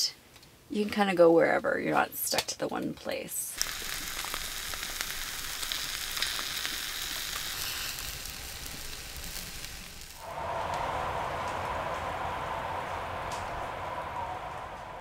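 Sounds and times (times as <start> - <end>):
bacon and eggs sizzling: 3.6 - 10.2.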